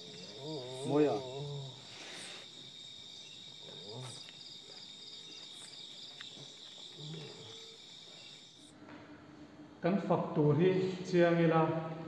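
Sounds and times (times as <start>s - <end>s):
crickets chirping: 0.0s - 8.8s.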